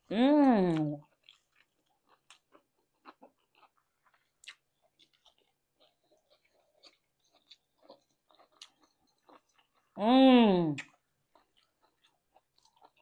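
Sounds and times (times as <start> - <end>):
soft chewing crunches: 0.7 - 10.0, 10.7 - 13.0
wet mouth clicks: 10.7 - 10.9.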